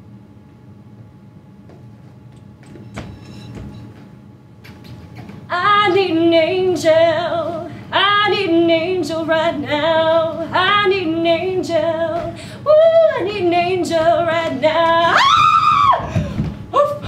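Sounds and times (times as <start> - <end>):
woman singing: 5.5 - 15.6.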